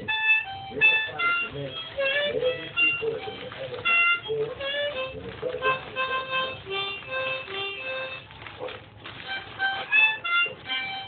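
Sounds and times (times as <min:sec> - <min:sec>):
harmonica tune: 0:00.0 - 0:11.0.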